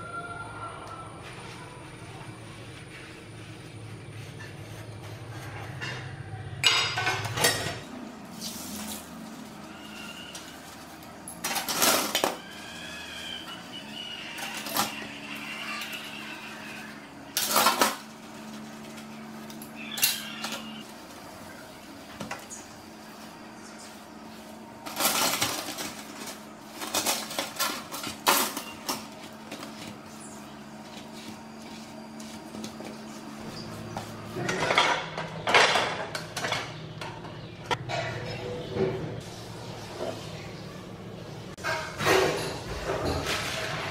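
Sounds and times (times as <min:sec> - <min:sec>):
cutlery clattering in metal sink: 0:41.6 - 0:43.9.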